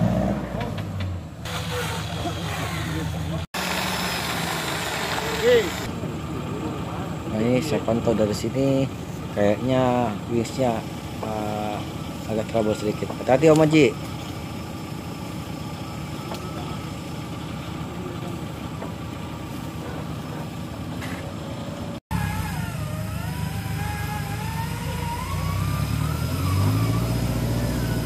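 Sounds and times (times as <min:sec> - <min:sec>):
off-road engine running: 0:00.0 - 0:28.0
wavering whine: 0:22.1 - 0:28.0.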